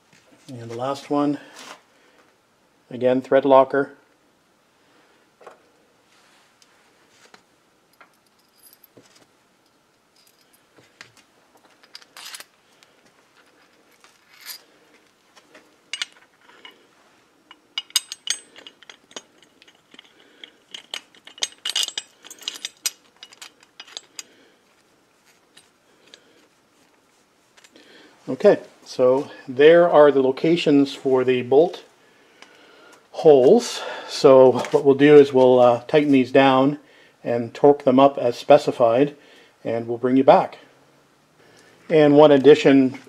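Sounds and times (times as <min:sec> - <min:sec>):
bolts and washers clinking: 0:07.9 - 0:15.2, 0:15.8 - 0:24.4.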